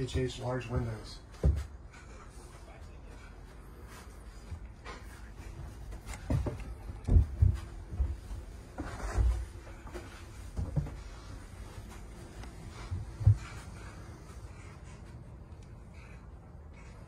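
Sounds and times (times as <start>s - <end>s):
footsteps dull thuds on floor: 0.0s - 2.2s, 4.3s - 15.2s.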